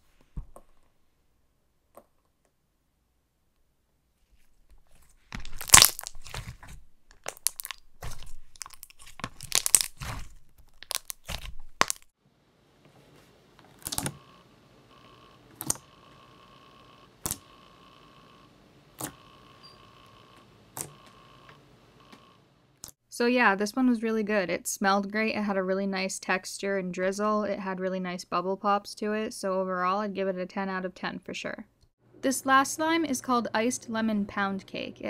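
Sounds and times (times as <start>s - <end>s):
slime squishing with bubble pops: 5.3s - 12.1s
sharp slime pops: 5.4s - 12.0s
faint steady hum: 5.4s - 26.0s.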